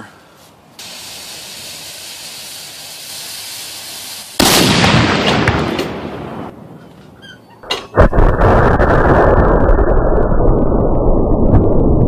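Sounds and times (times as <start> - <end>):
fuse hissing: 0.8 - 4.4
sharp cracks: 4.1 - 12.0
cannon blast: 4.4 - 6.6, 7.9 - 11.6.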